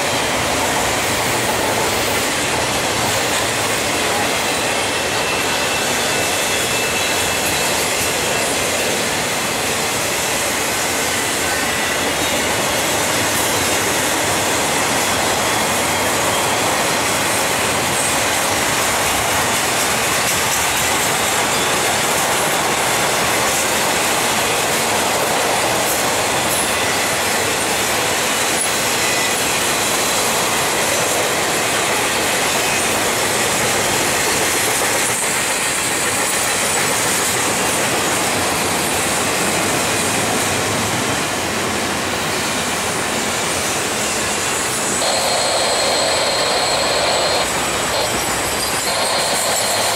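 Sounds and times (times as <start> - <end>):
steel wheels rushing on rail: 0.0 - 49.9
high wheel squeals: 3.8 - 19.3, 26.3 - 37.0, 43.7 - 49.9.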